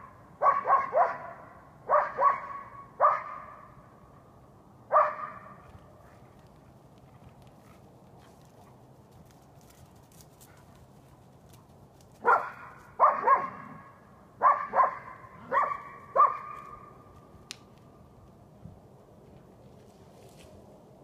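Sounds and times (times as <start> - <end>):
dog barking: 0.4 - 3.7, 4.9 - 5.6, 12.2 - 16.9.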